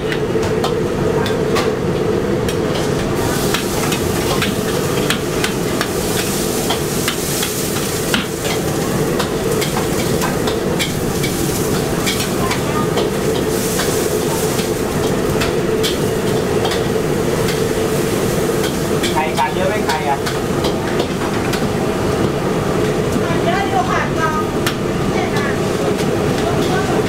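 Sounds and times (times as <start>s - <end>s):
food sizzling: 2.7s - 27.0s
ladle scraping a wok: 3.2s - 21.2s
low hum: 7.6s - 19.0s.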